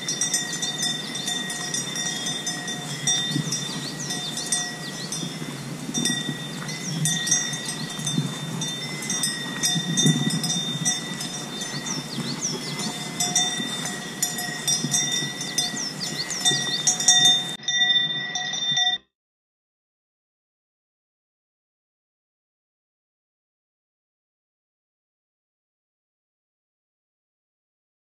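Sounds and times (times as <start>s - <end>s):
bike rolling across grass: 0.0s - 18.5s
cowbells clanking and ringing: 0.0s - 19.0s.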